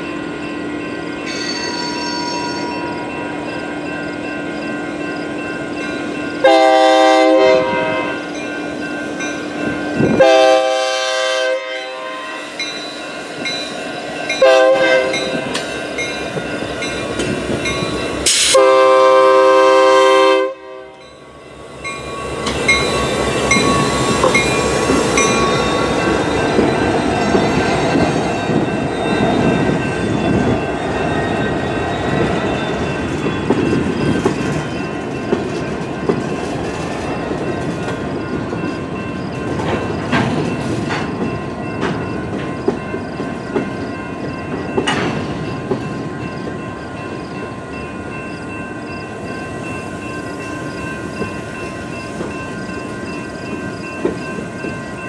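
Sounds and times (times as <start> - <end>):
locomotive air horn blasts: 6.4 - 8.3, 10.2 - 12.5, 14.4 - 15.4, 18.3 - 21.0
wheels clicking over rail joints: 21.8 - 46.1, 51.1 - 55.0.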